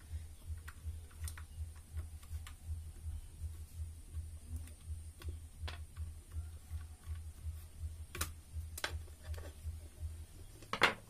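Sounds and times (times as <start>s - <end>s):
pulsing low hum: 0.0s - 8.8s.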